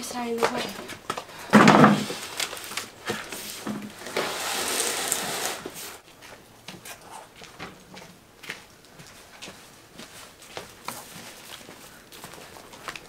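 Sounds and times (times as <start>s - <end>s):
rushing hiss: 3.4s - 6.0s.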